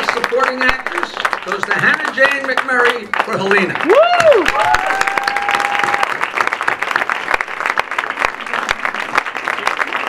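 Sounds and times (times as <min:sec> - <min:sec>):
audience applauding: 0:00.0 - 0:10.0
person whooping: 0:03.8 - 0:06.1.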